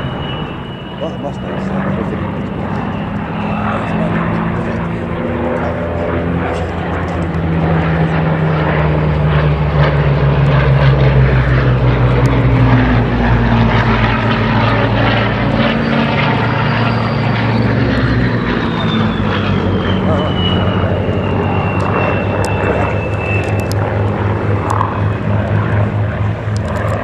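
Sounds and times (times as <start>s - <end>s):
thin high whine: 0.0s - 9.3s, 11.2s - 26.2s
aircraft piston engine droning: 0.0s - 27.0s.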